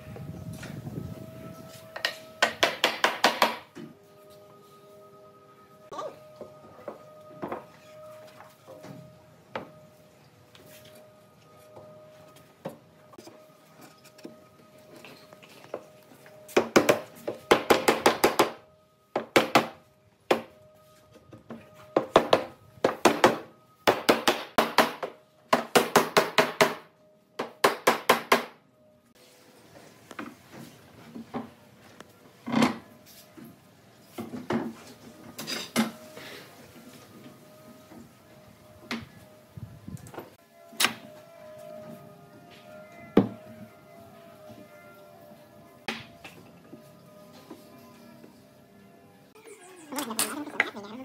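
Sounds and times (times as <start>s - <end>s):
hammer knocking on wood block: 2.4s - 3.6s.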